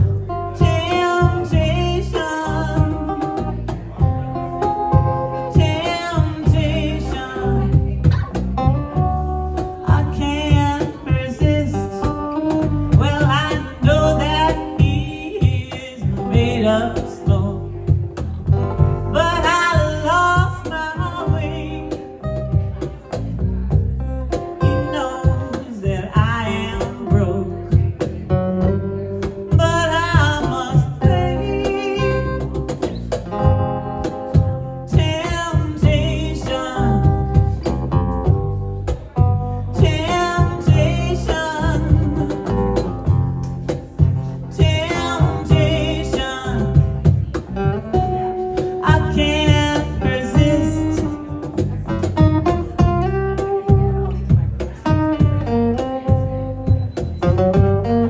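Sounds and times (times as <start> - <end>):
woman singing: 0.0 - 4.0, 5.3 - 22.9, 24.6 - 32.8, 34.0 - 43.3, 44.0 - 56.5
acoustic guitar: 0.0 - 58.0
cajon beat: 0.0 - 58.0
electric lead guitar: 0.0 - 58.0.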